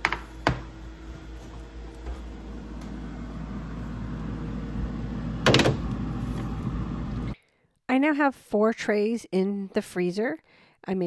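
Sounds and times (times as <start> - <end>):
steady low hum: 0.6 - 7.4.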